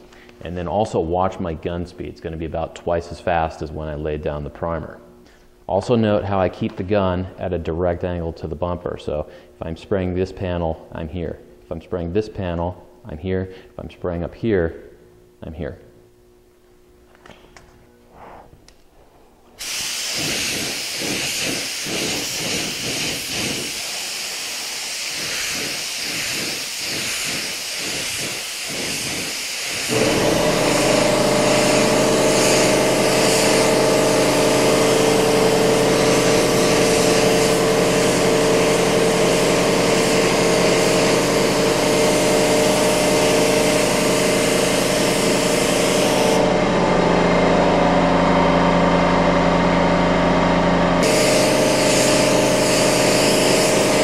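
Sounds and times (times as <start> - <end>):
paint spray gun hissing: 19.6 - 46.5, 51.0 - 54.0
air compressor motor humming: 19.6 - 54.0.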